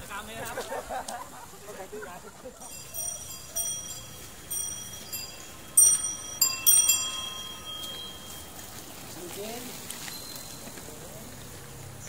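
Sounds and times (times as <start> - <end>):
bells ringing: 2.6 - 11.6.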